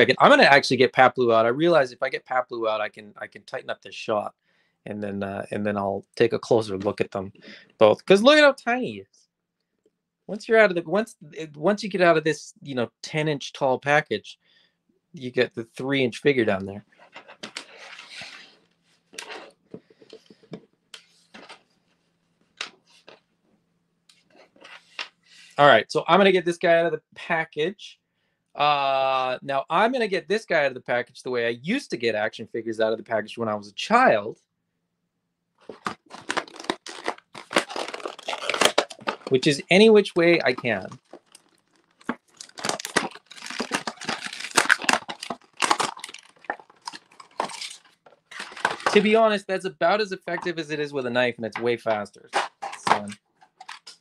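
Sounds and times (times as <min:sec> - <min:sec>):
plastic blister pack crackling: 0:35.6 - 0:49.3, 0:52.2 - 0:54.0.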